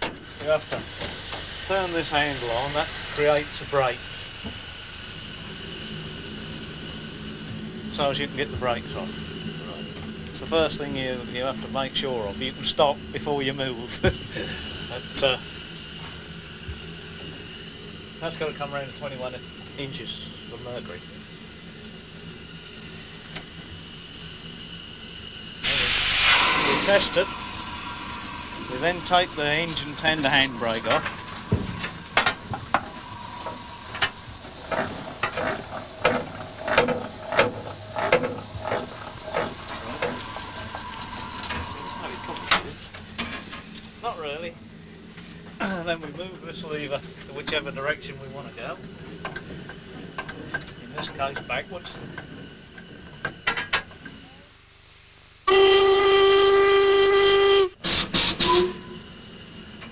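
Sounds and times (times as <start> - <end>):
steam hissing: 0.0 - 59.9
steam locomotive whistle: 25.6 - 34.8, 55.4 - 59.2.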